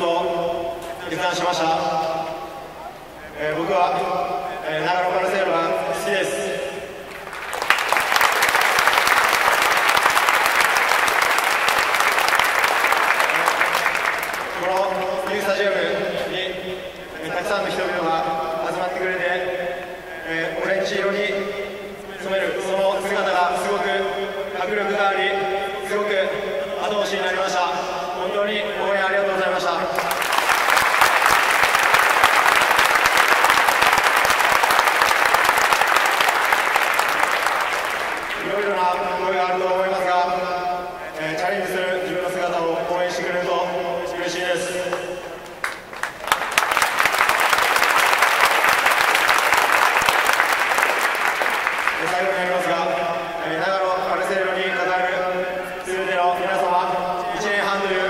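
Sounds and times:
stadium crowd applauding: 7.0 - 16.2, 29.8 - 39.2, 44.9 - 53.3.

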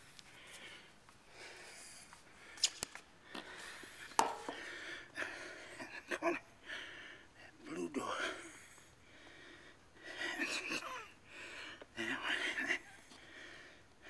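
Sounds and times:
camera handling knocks and clicks: 4.2 - 4.6.

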